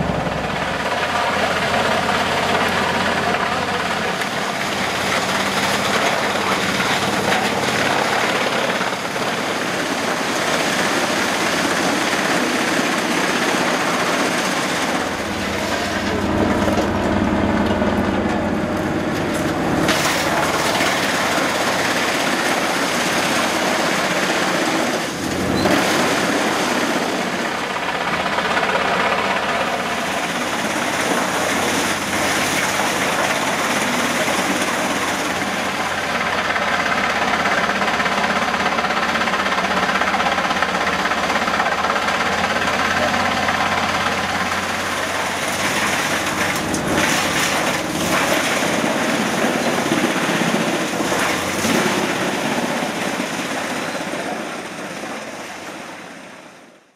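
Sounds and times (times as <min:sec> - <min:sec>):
tractor engine under load: 0:00.0 - 0:56.9
wood chipper chipping trunks: 0:00.0 - 0:56.9.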